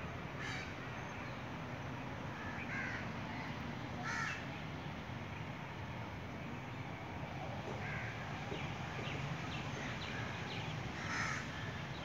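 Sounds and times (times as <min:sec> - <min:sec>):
low background noise: 0:00.0 - 0:12.0
birds calling: 0:06.6 - 0:12.0.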